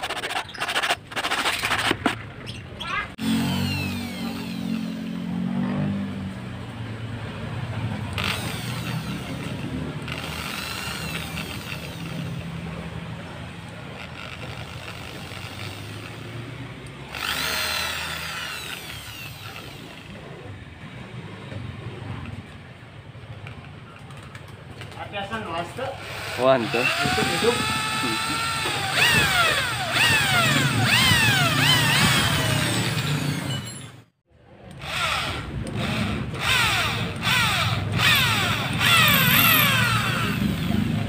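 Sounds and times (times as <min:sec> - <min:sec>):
electric drill boring into wood: 0:03.2 - 0:05.3, 0:08.1 - 0:12.6, 0:14.0 - 0:20.2, 0:26.0 - 0:33.6, 0:34.7 - 0:41.0.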